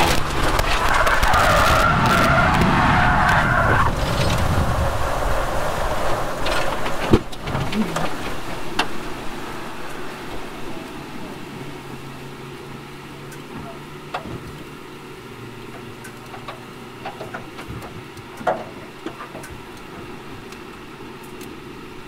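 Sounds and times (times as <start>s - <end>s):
car sliding across grass: 0.0s - 12.5s
car tyres skidding: 0.0s - 20.4s.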